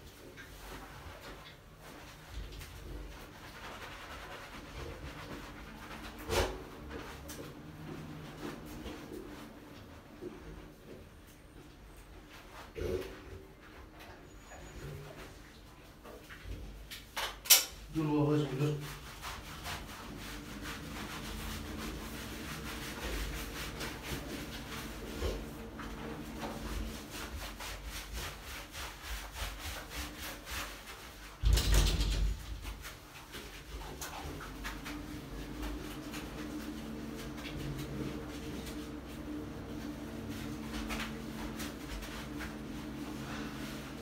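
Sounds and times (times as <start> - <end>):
hands scrubbing wet lather: 0.0 - 14.4, 17.8 - 31.4, 32.5 - 44.0.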